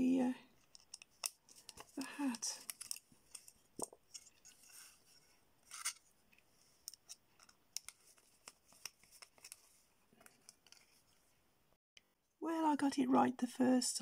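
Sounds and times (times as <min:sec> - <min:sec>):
screwdriver clicking and scraping: 0:00.6 - 0:02.0, 0:05.6 - 0:06.1.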